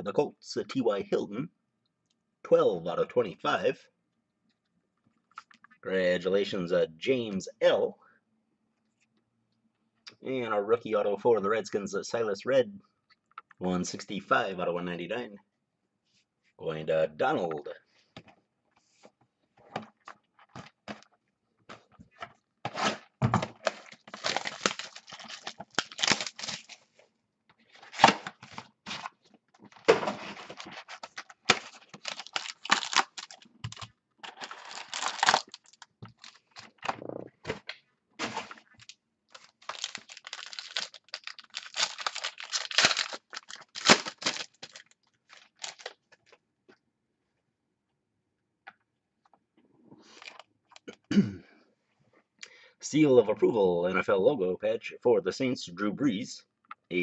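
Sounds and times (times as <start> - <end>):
foil wrapper crinkling: 23.6 - 26.9, 30.4 - 36.8, 38.2 - 46.2.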